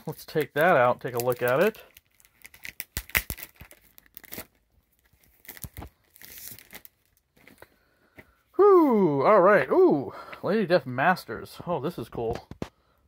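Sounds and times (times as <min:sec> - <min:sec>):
plastic sleeve crinkling: 0:00.0 - 0:07.7.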